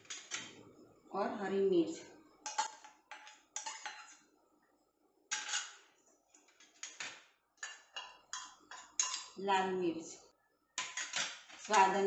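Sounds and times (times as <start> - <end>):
metal bowls clinking: 2.4 - 4.2, 5.3 - 5.9, 6.6 - 9.4, 10.8 - 11.9
spoon scraping steel bowl: 2.5 - 4.2.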